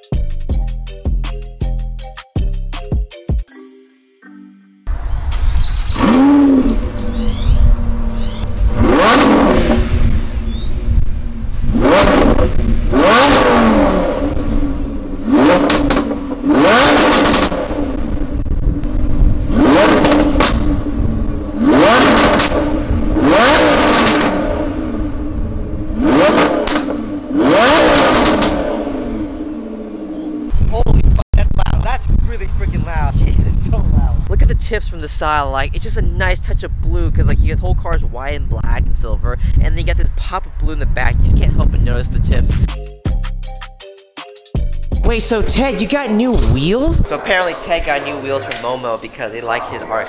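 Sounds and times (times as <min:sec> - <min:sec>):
sports car engine revving: 0:04.9 - 0:30.6.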